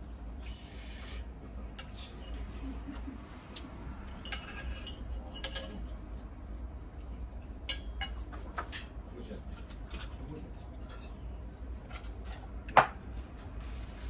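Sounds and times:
low steady hum: 0.0s - 14.0s
cutlery clinking on a plate: 4.2s - 5.9s.

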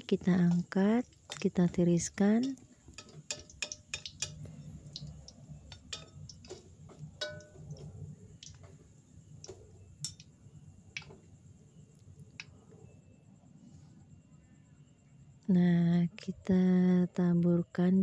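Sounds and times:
low steady hum: 0.0s - 18.0s
metal utensils clinking on wok: 0.5s - 8.6s, 10.0s - 10.2s.

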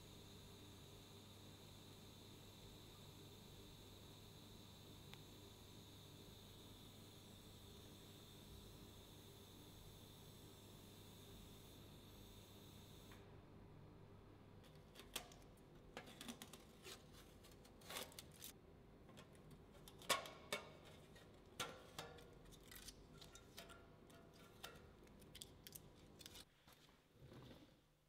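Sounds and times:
faint workshop hum: 0.0s - 28.0s.

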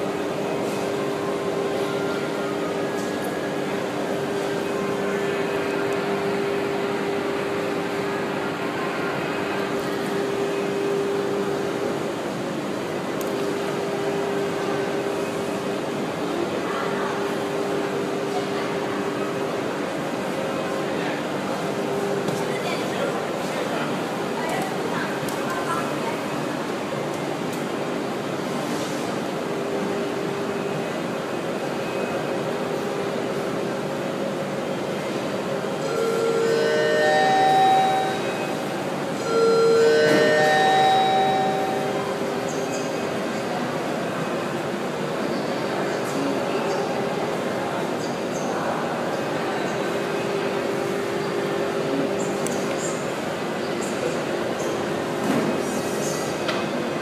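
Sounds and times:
electric lift motor humming: 35.8s - 42.4s.

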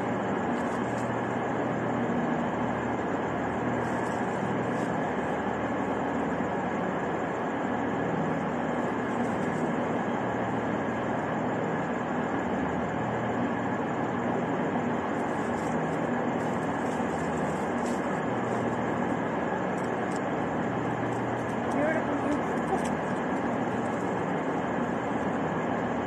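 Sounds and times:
trains running or idling: 13.4s - 26.0s.

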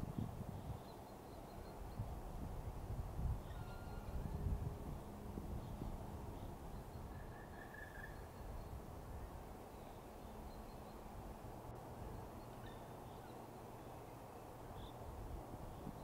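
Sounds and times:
faint bird calls: 6.4s - 11.1s.

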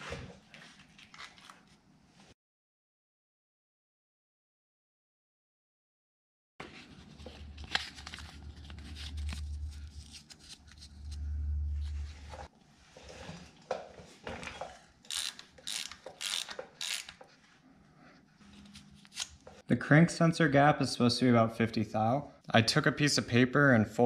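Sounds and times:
low hum: 7.6s - 12.5s
socket ratchet clicking: 15.1s - 17.2s.

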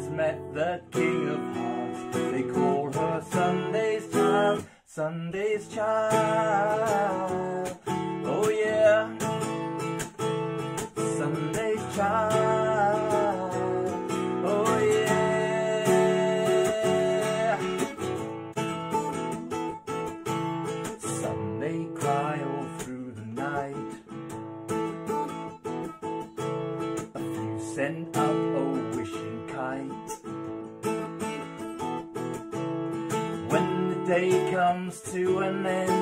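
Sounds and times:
man singing: 0.0s - 10.0s, 10.6s - 18.4s, 20.8s - 24.3s, 27.0s - 30.5s, 33.1s - 36.0s
acoustic guitar strumming: 0.0s - 36.0s.

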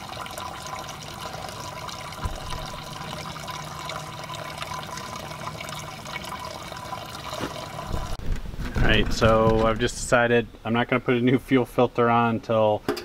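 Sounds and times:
fuel trickling into plastic bag: 0.2s - 8.2s.

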